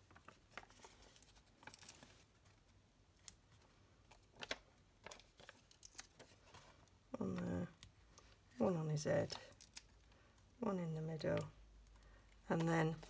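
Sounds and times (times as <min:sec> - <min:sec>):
faint clicks and crinkles of foam: 0:00.0 - 0:08.6.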